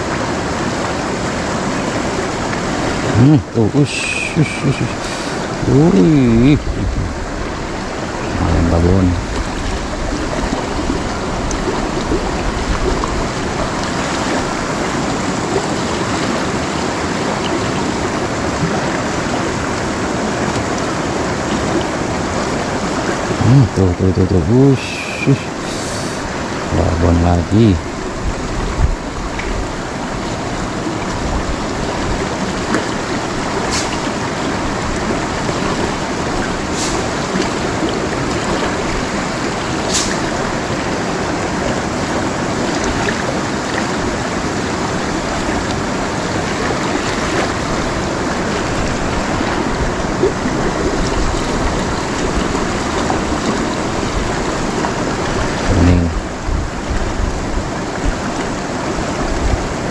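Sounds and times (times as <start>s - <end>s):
river rushing over rocks: 0.0s - 59.9s
short low vocal sound: 3.1s - 7.2s, 8.2s - 9.4s, 23.4s - 27.8s, 55.6s - 56.3s.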